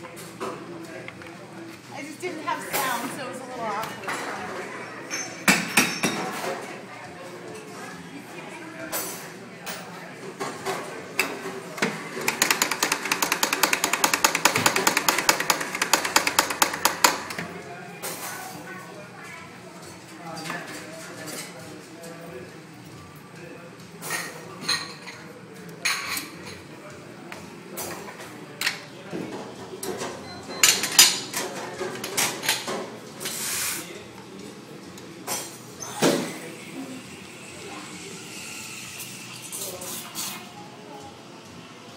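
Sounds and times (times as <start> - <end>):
cups and metal parts clinking: 29.8 - 33.4.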